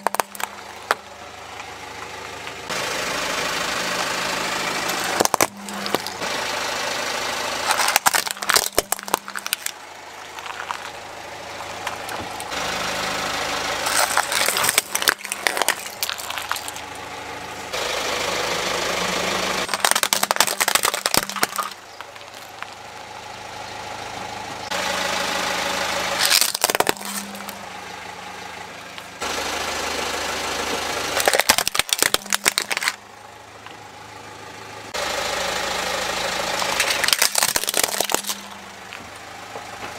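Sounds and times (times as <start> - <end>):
plastic toys cracking and crunching: 0.0 - 1.0, 4.9 - 6.2, 7.6 - 11.0, 13.8 - 16.9, 19.6 - 22.8, 26.2 - 27.6, 31.2 - 33.0, 36.6 - 38.6
car engine idling: 0.0 - 39.9.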